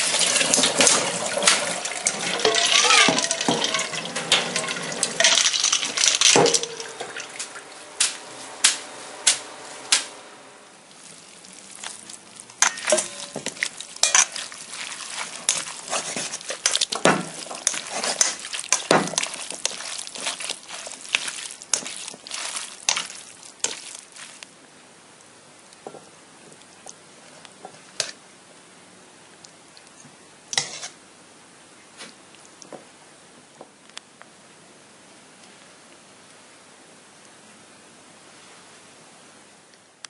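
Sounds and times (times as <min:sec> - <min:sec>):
water sloshing in strainer: 0:00.0 - 0:07.7, 0:10.9 - 0:24.4
tongs scraping metal bowl: 0:00.3 - 0:07.1, 0:11.8 - 0:24.4, 0:30.6 - 0:31.0.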